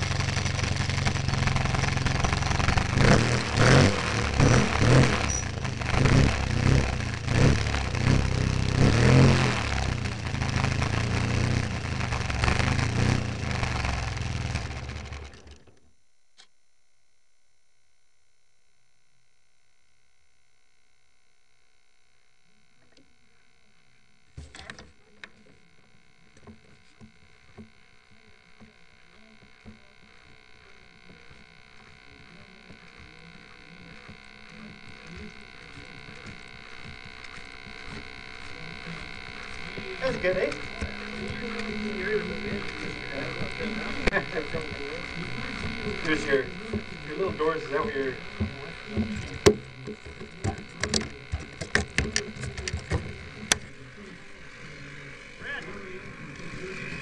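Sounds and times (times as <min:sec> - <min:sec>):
model airplane engine hum: 0:00.0 - 0:16.0, 0:19.7 - 0:57.0
sharp clicks and knocks: 0:48.2 - 0:53.7.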